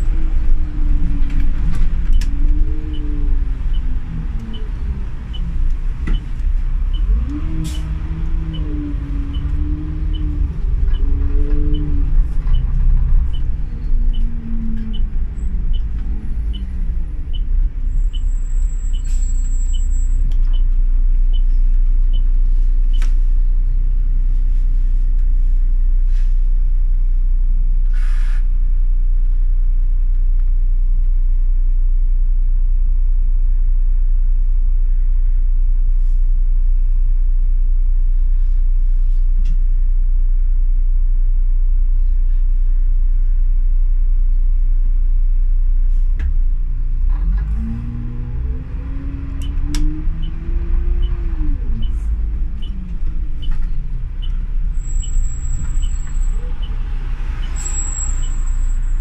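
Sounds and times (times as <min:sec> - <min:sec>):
bus engine running: 0:00.0 - 0:30.5, 0:45.7 - 0:59.0.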